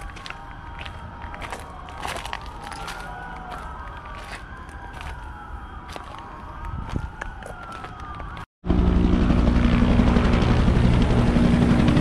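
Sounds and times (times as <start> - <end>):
distant emergency siren wailing: 0.0 - 12.0
helicopter flying overhead: 3.1 - 12.0.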